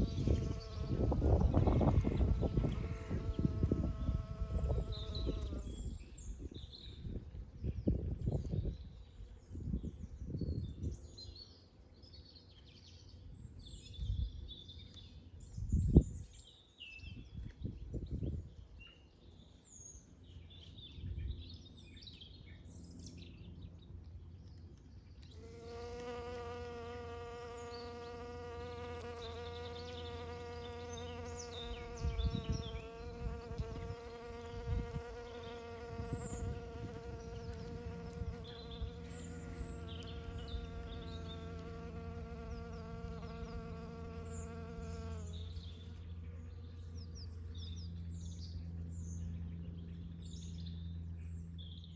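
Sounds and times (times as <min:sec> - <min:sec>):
bees buzzing: 0:25.4 - 0:45.8.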